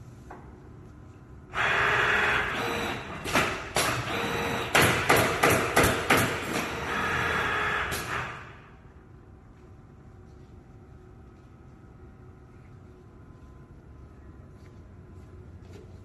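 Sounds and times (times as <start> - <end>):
machine whirring and hissing: 1.5 - 8.9.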